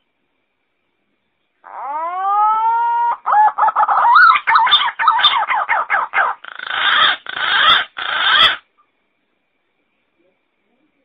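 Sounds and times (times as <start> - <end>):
pigeon warbling whistled notes: 1.7 - 8.6.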